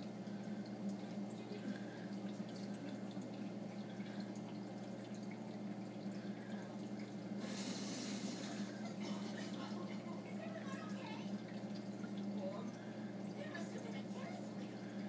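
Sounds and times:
low pump hum: 0.0 - 15.0
water trickling and dripping: 0.0 - 15.0
hiss of rushing water: 7.4 - 8.9.

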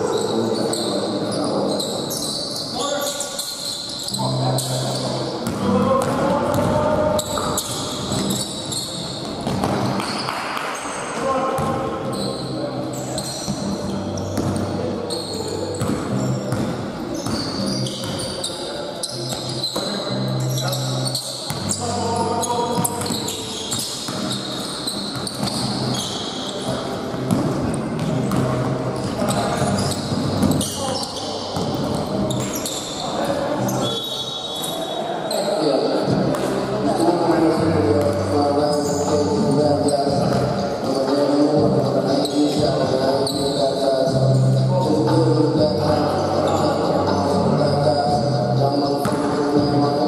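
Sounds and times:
sneaker squeaks: 0.0 - 36.8, 37.9 - 41.3, 42.0 - 43.8, 45.5 - 47.2
ball bouncing on hard court: 5.4 - 6.8, 9.2 - 10.7, 15.8 - 18.2, 26.7 - 32.7
basketball bouncing: 9.2 - 10.1, 15.8 - 18.2.

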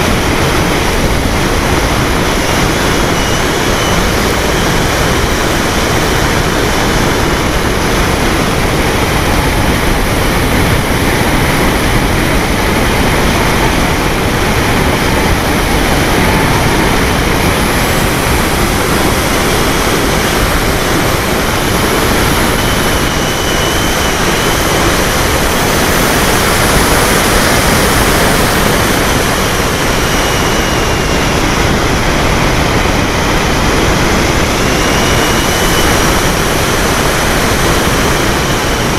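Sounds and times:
high motor whine: 0.0 - 38.9
propeller noise: 0.0 - 38.9
wind rushing: 0.0 - 38.9.

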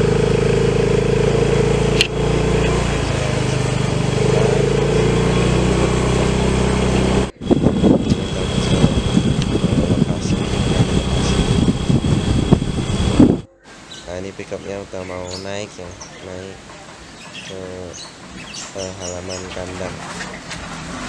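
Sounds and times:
vehicle engine droning: 0.0 - 21.0
wind noise on microphone: 7.1 - 13.9.

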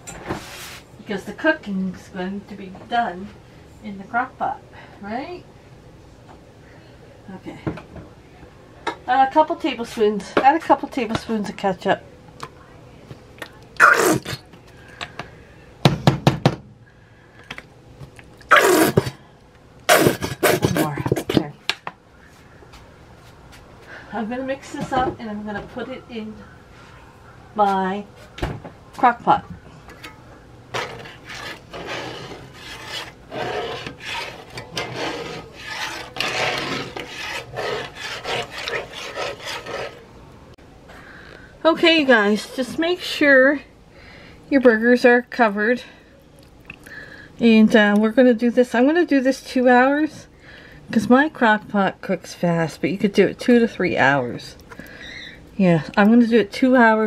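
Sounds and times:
metal spatula scraping skillet: 29.9 - 40.1.

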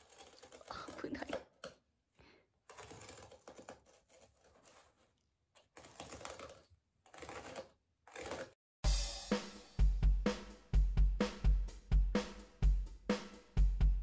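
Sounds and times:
utility knife cutting carpet tile: 0.0 - 1.8, 2.5 - 8.6.

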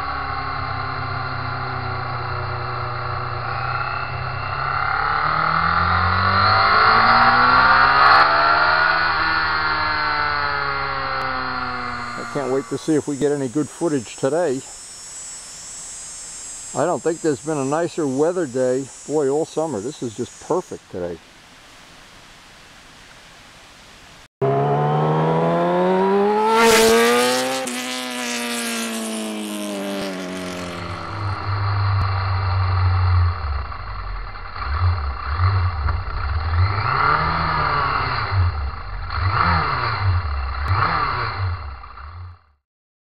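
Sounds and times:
motorcycle engine revving: 0.0 - 15.4, 24.4 - 42.6.

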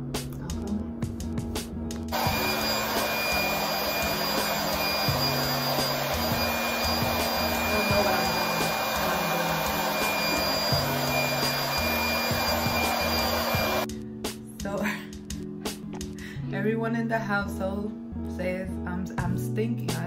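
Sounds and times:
background music: 0.0 - 20.0
hair dryer blowing: 2.1 - 13.9.

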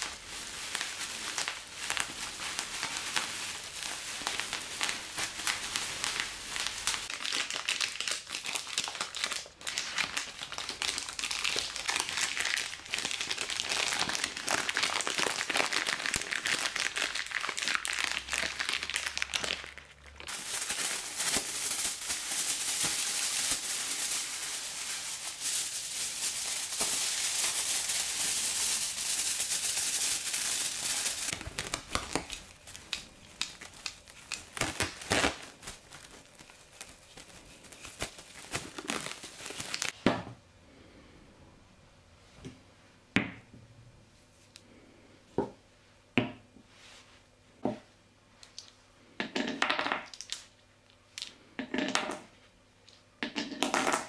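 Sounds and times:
cling film crackles: 0.0 - 40.0
plastic bag crinkling: 0.0 - 40.0
plastic packaging crinkling: 0.0 - 40.0.

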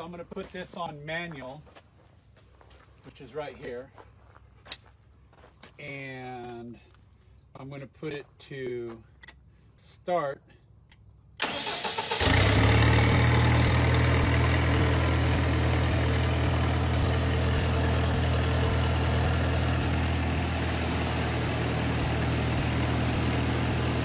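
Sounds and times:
diesel engine idling: 11.4 - 24.0
diesel engine starter cranking: 11.4 - 24.0.

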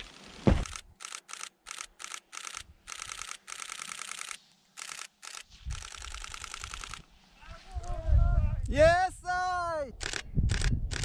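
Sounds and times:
camera shutter burst clicks: 0.0 - 7.1, 10.0 - 11.0.

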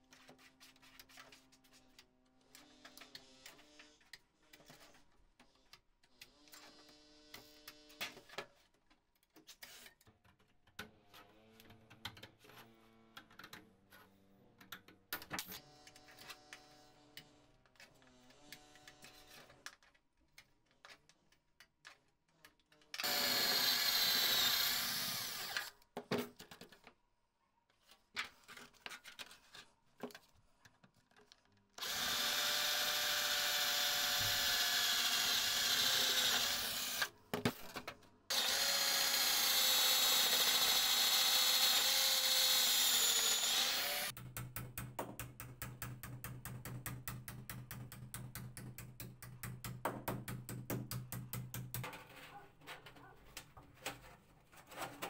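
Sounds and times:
power drill boring through metal: 23.0 - 25.7, 31.8 - 37.1, 38.3 - 44.1.

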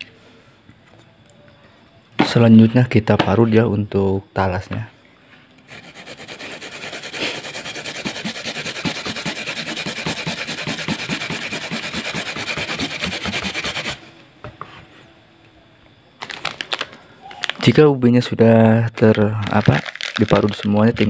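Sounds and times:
root rasped on hand grater: 5.7 - 14.1.

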